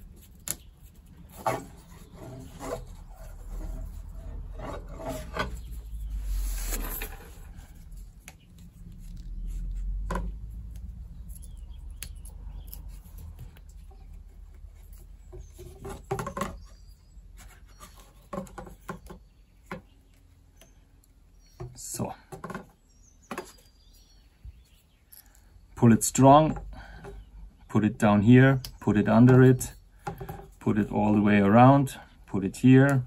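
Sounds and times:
cord rubbing and rustling: 0.0s - 20.4s.

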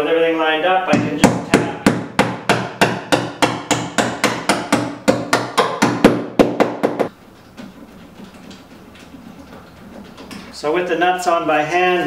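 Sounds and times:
hammer tapping bolts: 1.0s - 10.5s.

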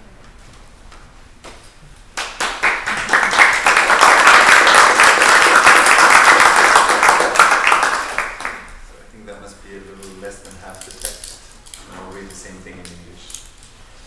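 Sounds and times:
audience applauding: 2.2s - 8.7s.

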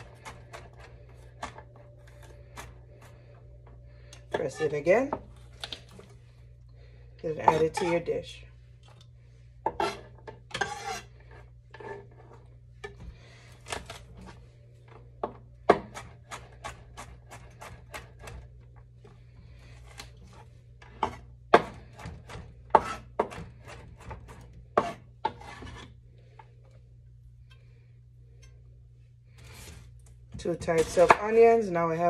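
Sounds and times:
blade scraping board: 7.4s - 8.1s, 9.6s - 12.4s, 22.7s - 24.2s, 24.8s - 26.0s
knife chopping on wooden board: 21.0s - 25.8s.

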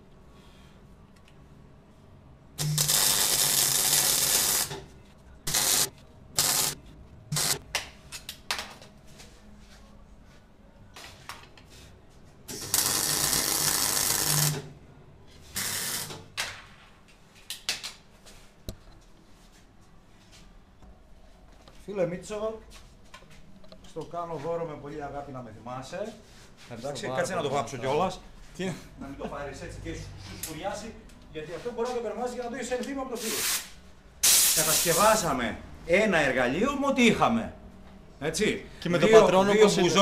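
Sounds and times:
arc welder crackling and hissing: 2.6s - 4.8s, 5.4s - 7.6s, 12.5s - 14.7s, 15.5s - 16.3s, 33.1s - 35.3s.

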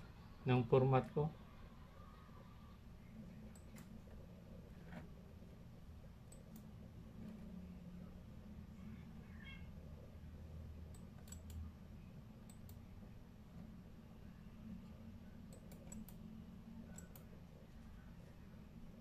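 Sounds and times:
low steady hum: 0.0s - 19.0s
faint clicks: 10.9s - 11.6s, 15.5s - 16.2s, 16.9s - 17.3s.

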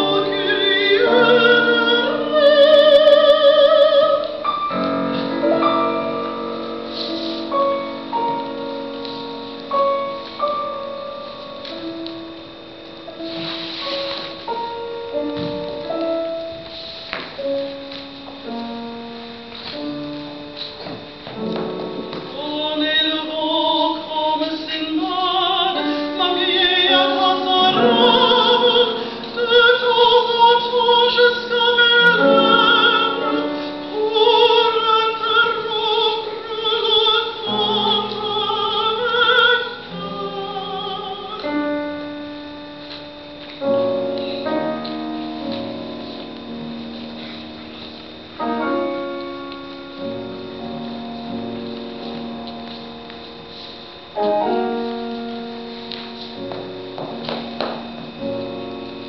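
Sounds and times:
woman singing opera: 0.0s - 4.8s, 22.3s - 42.0s
piano accompaniment: 0.0s - 59.0s.

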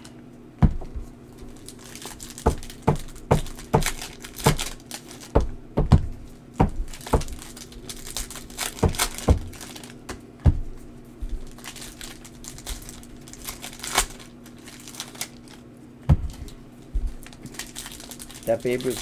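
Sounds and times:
card pack wrappers crinkling: 1.3s - 5.5s, 6.2s - 10.1s, 11.2s - 19.0s.

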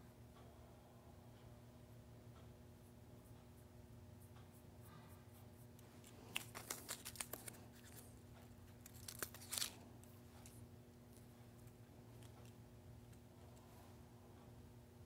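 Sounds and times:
steady low hum: 0.0s - 15.0s
rustling and crackling handling: 5.8s - 13.8s.

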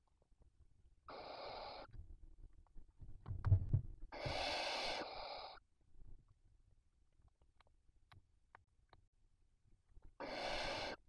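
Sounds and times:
owl chicks hissing: 1.1s - 1.9s, 4.1s - 5.6s, 10.2s - 11.0s.

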